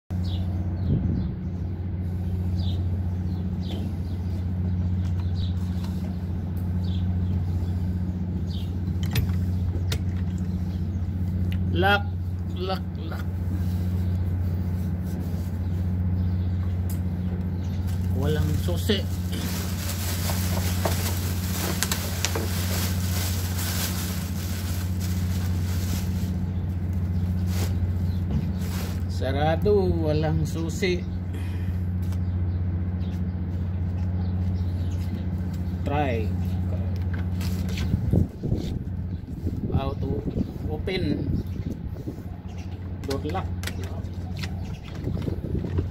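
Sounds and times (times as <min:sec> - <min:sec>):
low machine hum: 0:00.1 - 0:45.9
small bird chirping: 0:43.8 - 0:45.6.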